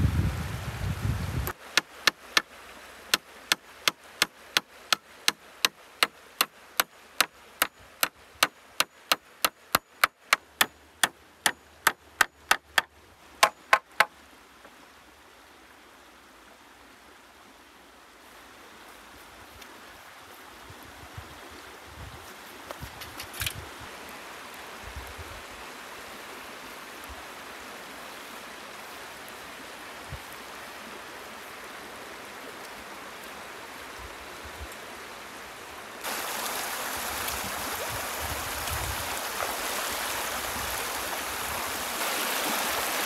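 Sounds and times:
faint river hiss: 0.0 - 43.0
hammer driving nails into wood: 3.1 - 14.1.

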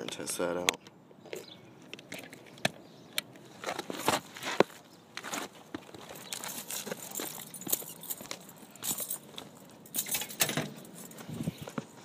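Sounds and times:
footsteps on roof shingles: 3.5 - 9.7.

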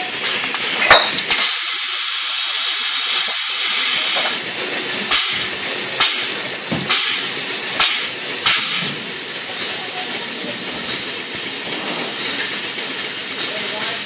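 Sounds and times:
bottle filler hissing: 0.0 - 14.0
clanks of glass bottles and mechanism: 0.2 - 1.6, 3.2 - 4.4.

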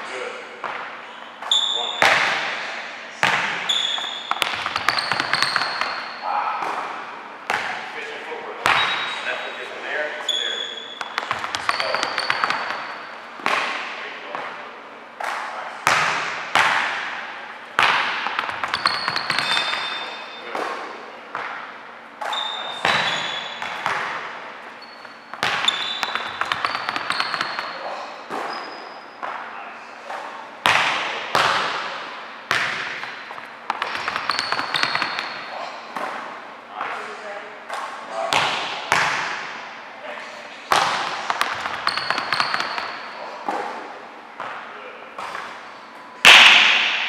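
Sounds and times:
sneaker squeaks: 1.0 - 2.3, 3.2 - 6.6, 8.6 - 14.6, 18.2 - 30.4, 32.6 - 36.2, 41.4 - 43.8, 45.2 - 46.2
basketball thudding on hardwood floor: 4.3 - 6.0, 11.0 - 12.9, 17.8 - 19.9, 25.3 - 27.7.

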